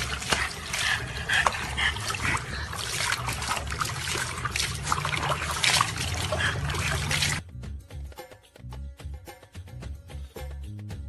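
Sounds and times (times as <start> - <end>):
dog vocalisations: 0.0 - 7.4
water splashing in plastic tub: 0.0 - 7.4.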